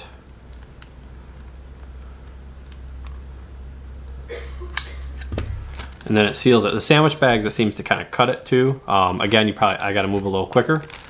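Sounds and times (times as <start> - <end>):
low steady hum: 0.0 - 11.0
plastic bag crinkling and ticking: 0.4 - 3.2, 9.1 - 11.0.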